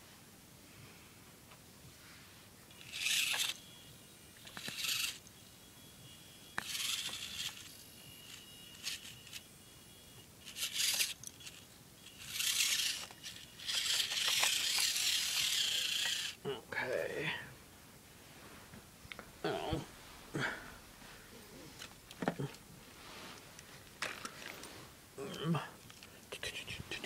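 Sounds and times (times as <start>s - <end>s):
small electric motor whirring: 2.7s - 16.4s
tyres scraping on stone: 12.2s - 16.4s.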